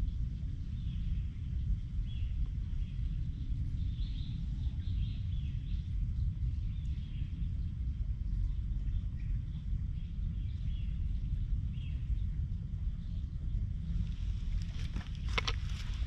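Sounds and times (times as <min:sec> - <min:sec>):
steady low rumble: 0:00.0 - 0:16.0
small birds chirping: 0:13.0 - 0:16.0.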